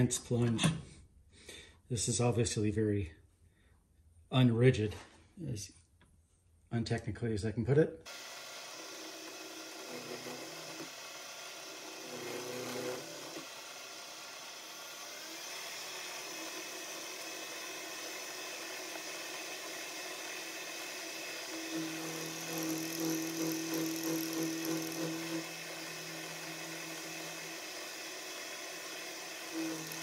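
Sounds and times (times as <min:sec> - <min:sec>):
milling machine spindle whirring: 0:08.1 - 0:30.0.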